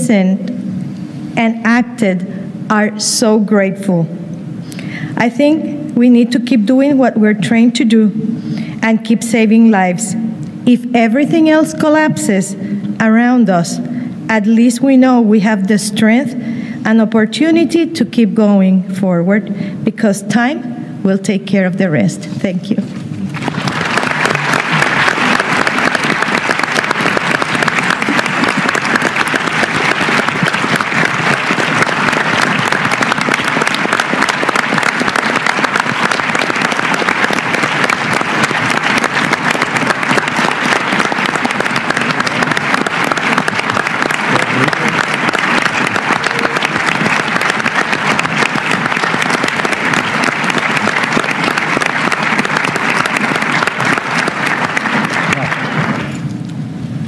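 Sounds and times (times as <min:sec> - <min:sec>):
large audience applauding: 0:23.3 - 0:56.2.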